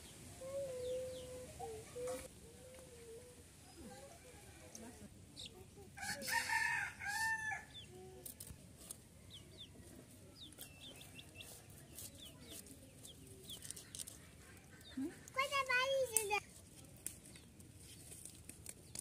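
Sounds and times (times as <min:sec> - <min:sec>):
rooster crowing: 0:06.0 - 0:07.7.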